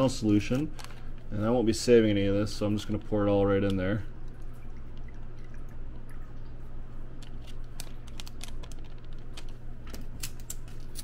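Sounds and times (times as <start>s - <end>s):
plastic foil sachet crinkling: 7.2s - 11.0s.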